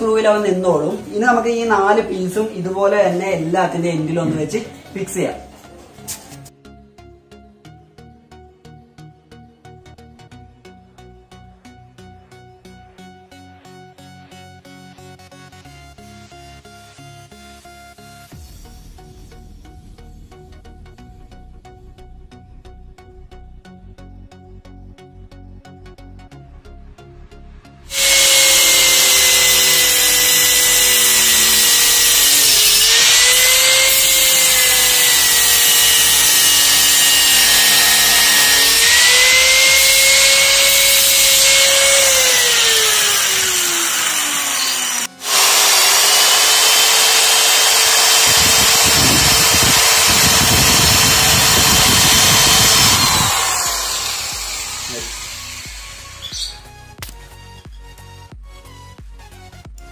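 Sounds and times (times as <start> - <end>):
angle grinder whining: 27.9 - 57.2
grinding wood: 27.9 - 57.2.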